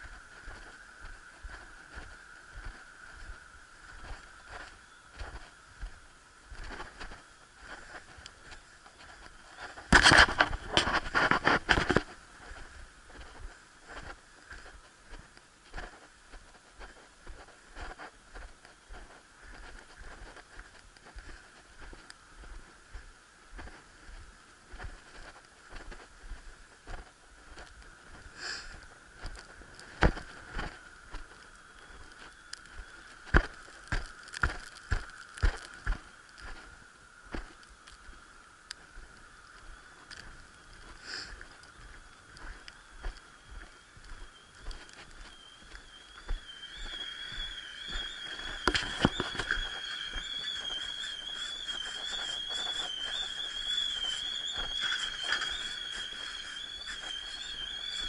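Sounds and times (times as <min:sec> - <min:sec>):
rustling and scraping on camera: 0:00.0 - 0:22.8, 0:48.0 - 0:57.6
faint background noise: 0:00.0 - 0:58.0
faint crackles: 0:00.0 - 0:58.0
footsteps in snow: 0:00.0 - 0:58.0.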